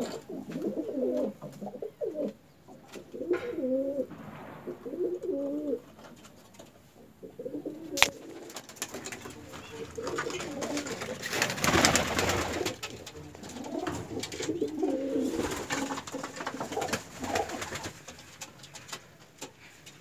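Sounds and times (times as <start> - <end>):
pigeons cooing: 0.0 - 4.1, 4.7 - 6.0, 7.0 - 20.0.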